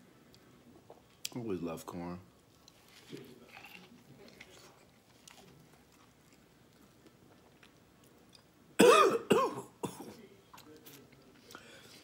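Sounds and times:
man coughing: 8.8s - 10.2s.

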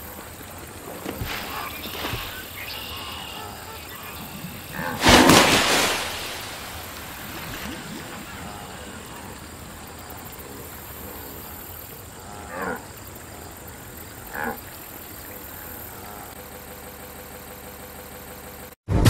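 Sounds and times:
background ambience: 0.0s - 18.6s
big water splash: 1.1s - 3.3s, 3.9s - 8.8s.

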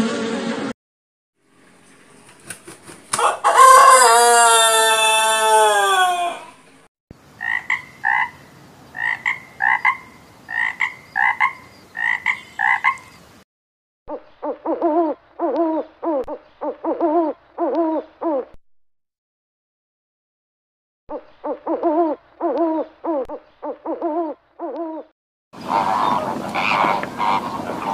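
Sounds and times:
rooster crowing: 3.1s - 6.6s
frog croaking: 7.4s - 13.1s.

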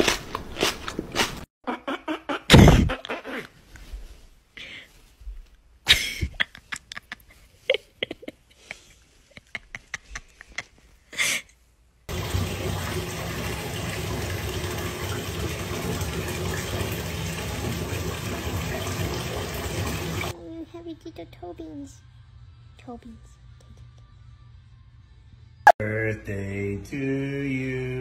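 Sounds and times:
water running from bathtub tap: 12.1s - 20.4s.

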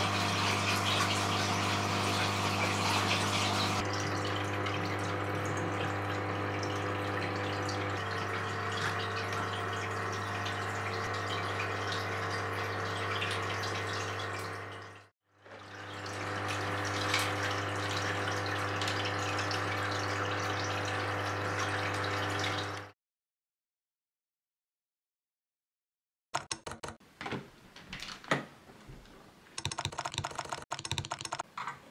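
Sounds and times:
water running and splashing: 0.0s - 22.8s.

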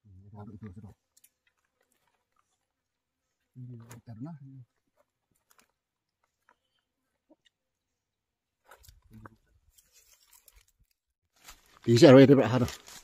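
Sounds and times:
small clicks of eating: 0.6s - 3.0s
faint chewing: 1.0s - 3.6s.

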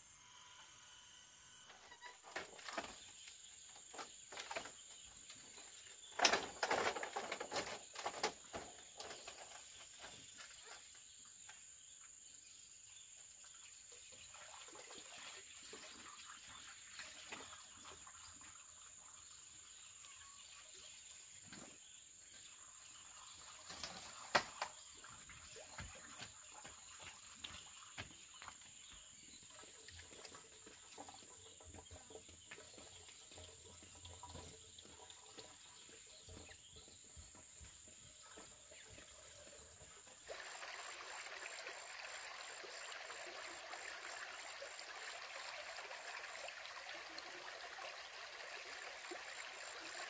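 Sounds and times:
insects trilling: 0.0s - 11.2s.

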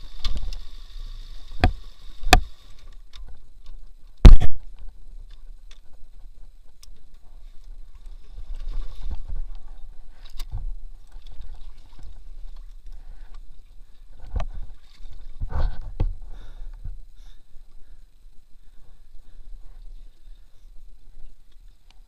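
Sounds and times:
water sloshing and splashing: 7.8s - 13.1s, 13.7s - 16.1s.

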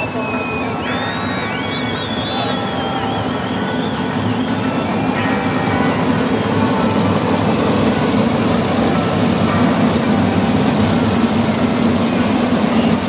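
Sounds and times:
race car engines roaring past: 0.0s - 13.0s.

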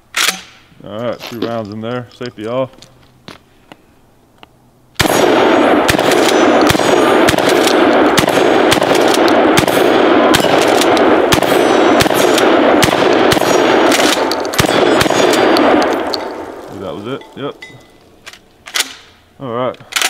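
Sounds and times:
shotgun firing: 5.0s - 16.6s
steel targets ringing: 5.2s - 7.3s, 11.4s - 12.2s, 14.5s - 16.4s.

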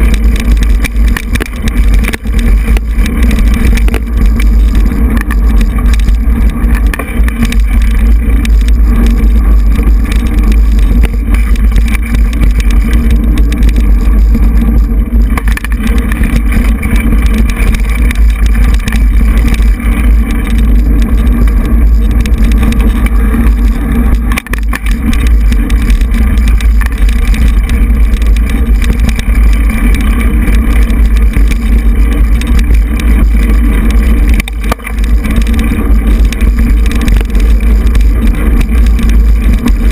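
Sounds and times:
bike knocks and rattles: 0.0s - 39.9s
wind rumble on microphone: 0.0s - 39.9s.

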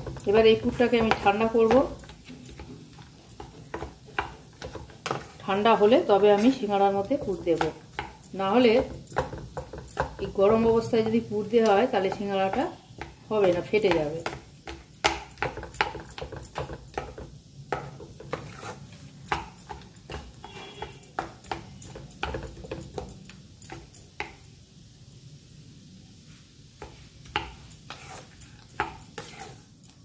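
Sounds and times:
spatula knocking against pan: 0.0s - 2.7s, 7.0s - 18.4s, 19.3s - 23.1s
spatula scraping a pan: 0.0s - 17.2s, 17.8s - 23.1s, 26.8s - 29.7s.

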